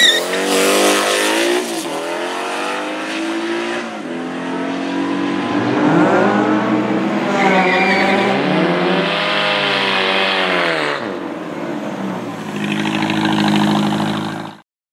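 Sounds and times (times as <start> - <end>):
brief high squeal: 0.0 - 0.4, 7.4 - 8.3
race car engines accelerating: 0.0 - 14.6.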